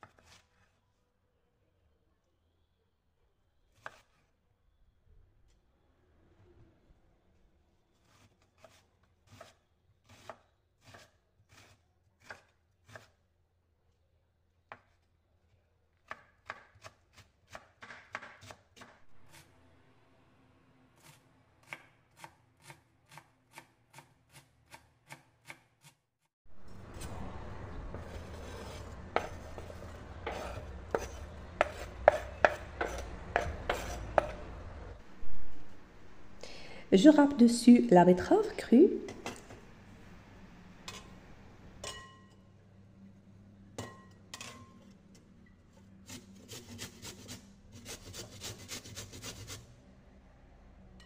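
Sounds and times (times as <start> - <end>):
knife slicing cabbage on wooden board: 0.0 - 0.7, 3.7 - 4.3, 8.0 - 13.2, 28.0 - 34.4.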